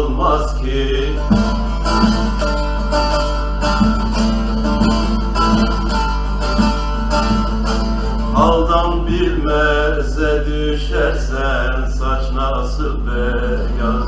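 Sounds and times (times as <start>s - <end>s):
person singing folk song: 0.0s - 14.0s
long-necked lute strummed and plucked: 0.7s - 9.8s.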